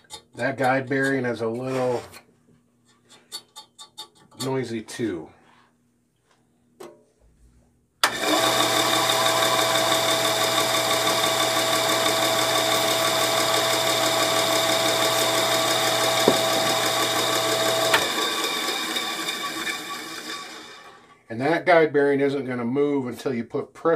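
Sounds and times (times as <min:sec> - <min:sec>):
bandsaw motor hum and whine: 0:08.0 - 0:21.0
noisy guide bearing: 0:11.0 - 0:19.6.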